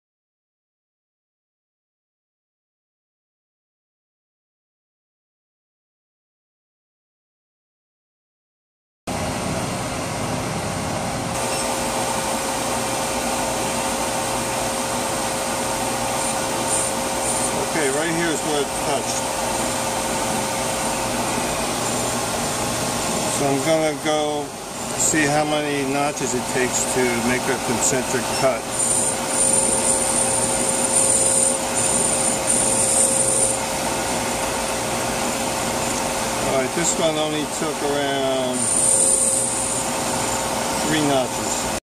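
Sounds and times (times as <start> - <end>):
brake lathe motor whirring: 15.4 - 24.0, 26.2 - 37.6, 38.5 - 41.7
high-pitched scraping whine: 15.9 - 25.4, 26.1 - 41.7.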